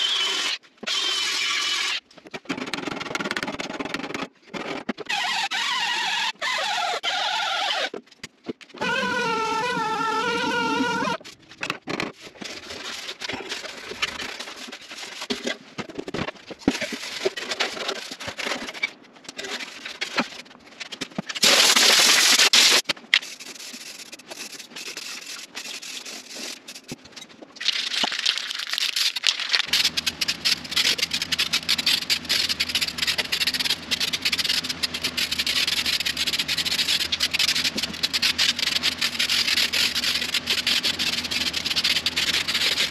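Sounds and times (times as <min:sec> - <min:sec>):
parts clicking and knocking: 0:28.8 - 0:42.9.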